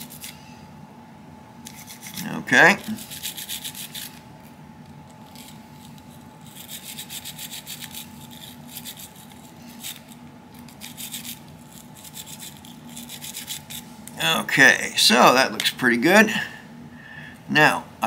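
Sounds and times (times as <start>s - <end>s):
brush scrubbing metal: 10.8s - 13.9s.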